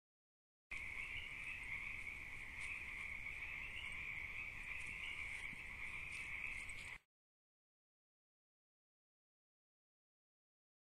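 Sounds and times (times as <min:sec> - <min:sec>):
frogs trilling: 0:00.7 - 0:07.0.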